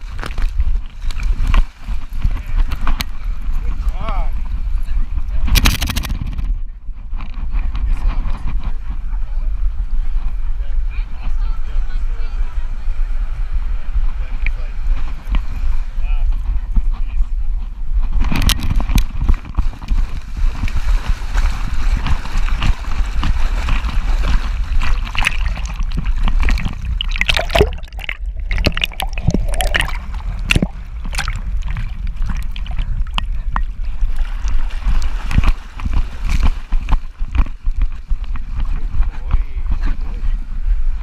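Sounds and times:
water sloshing and splashing: 0:18.2 - 0:39.0
low rumble: 0:23.3 - 0:36.0.

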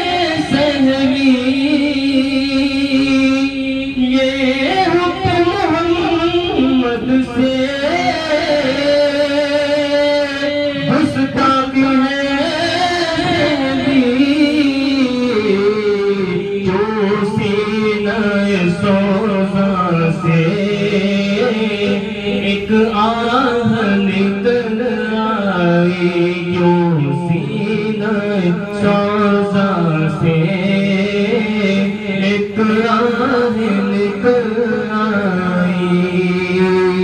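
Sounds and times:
man singing into a microphone: 0:00.0 - 0:37.0.

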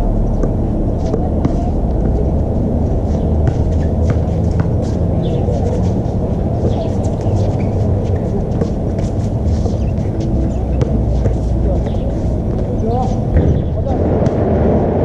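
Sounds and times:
low rumble: 0:00.0 - 0:15.0
sneakers squeaking on court: 0:06.6 - 0:07.9.

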